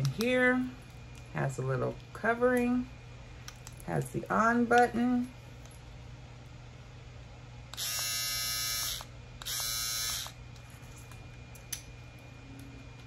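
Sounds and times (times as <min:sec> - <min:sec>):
electric shaver buzzing: 0:07.8 - 0:10.4.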